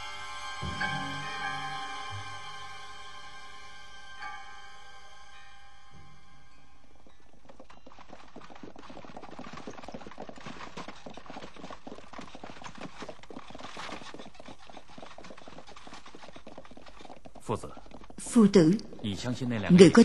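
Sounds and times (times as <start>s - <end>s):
horse hooves clip-clopping: 6.8s - 20.0s.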